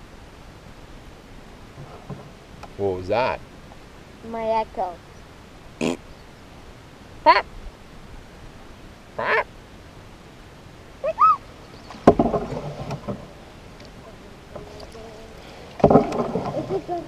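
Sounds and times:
child hooting: 11.0 - 11.4
child calling playfully: 11.0 - 11.5.

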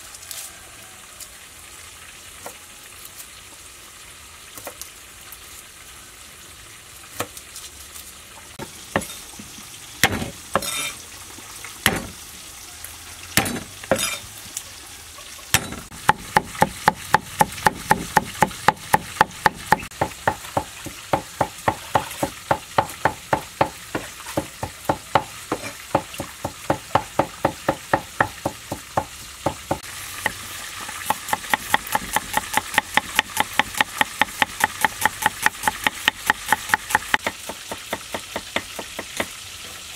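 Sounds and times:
knife chopping on wooden block: 10.0 - 10.8, 15.6 - 29.8.

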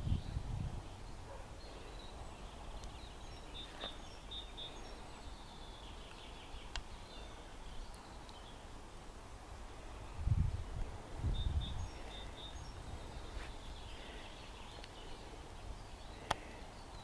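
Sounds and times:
high bird chirps: 1.0 - 8.6.

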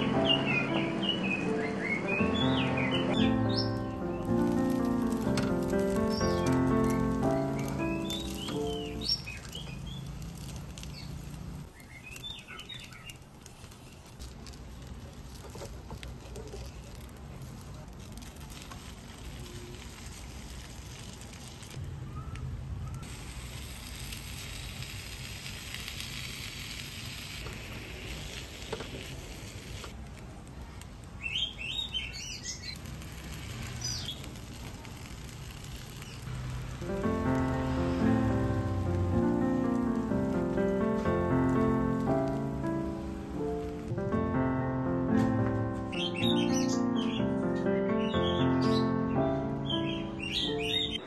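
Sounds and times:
birds chirping: 0.0 - 10.2, 10.8 - 13.2, 31.2 - 32.8, 33.7 - 34.3, 45.6 - 51.0
food cooking in a pan: 3.4 - 21.8, 23.0 - 42.6.

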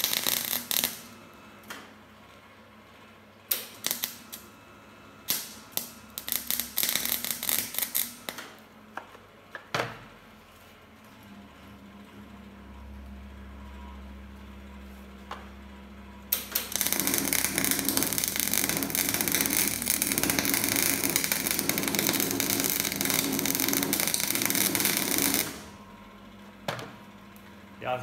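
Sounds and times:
welding arc crackling: 0.0 - 1.8, 3.5 - 4.5, 5.2 - 8.6, 16.3 - 25.8
low machine hum: 0.0 - 28.0.

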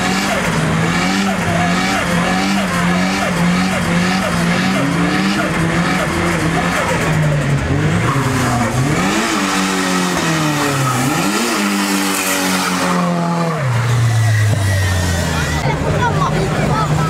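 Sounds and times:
car engine revving: 0.0 - 17.0
tyres spinning on road: 0.0 - 17.0.

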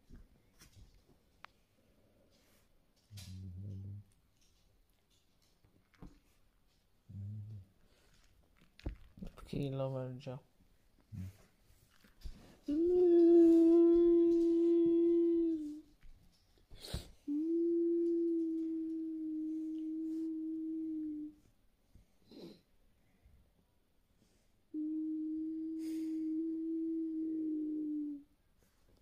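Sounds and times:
man fake-crying moans: 12.7 - 15.8.

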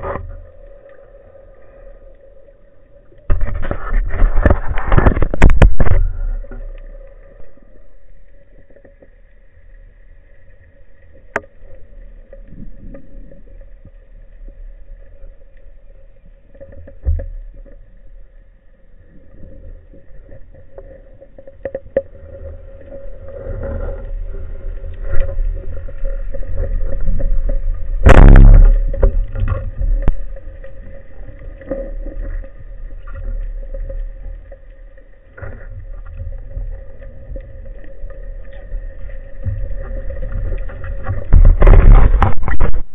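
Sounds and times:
underwater rumble of moving water: 0.0 - 42.9
steady hum: 27.9 - 32.4.

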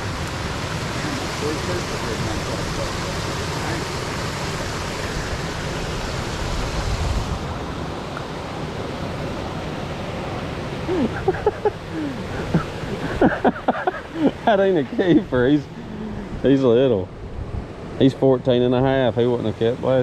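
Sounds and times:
steady rushing noise: 0.0 - 20.0
faint voices: 14.1 - 17.1.

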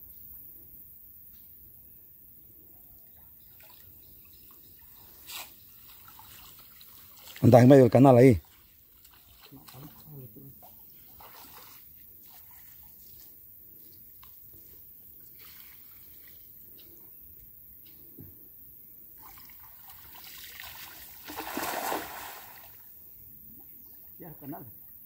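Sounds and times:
water trickling and dripping: 3.0 - 12.8
water splashing: 5.7 - 12.9, 19.2 - 24.7
person swimming through water: 19.2 - 22.8.

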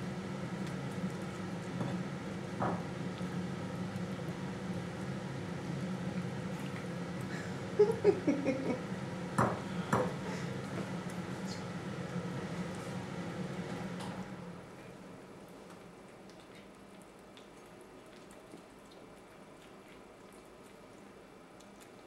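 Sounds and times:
cat eating off a plate: 16.0 - 22.0.

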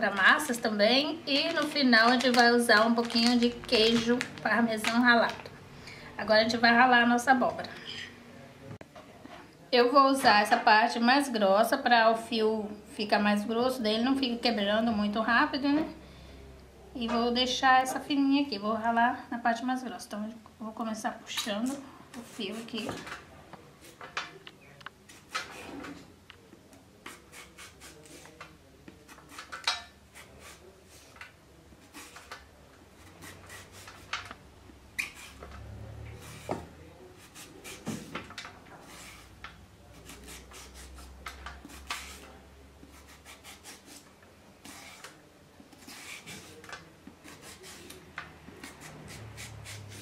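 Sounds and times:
zucchini scraping on grater: 42.9 - 44.0, 44.6 - 45.1, 45.8 - 46.6, 47.2 - 47.9, 48.6 - 50.0.

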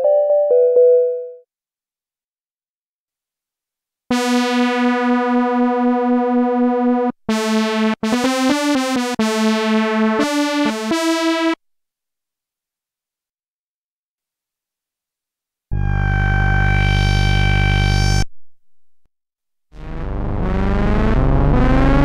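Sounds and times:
synthesizer notes: 4.1 - 11.6, 19.8 - 22.0.

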